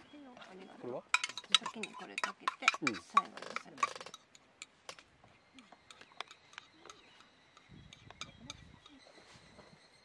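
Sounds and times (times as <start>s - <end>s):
spoon tapping plastic tub: 1.2s - 4.2s.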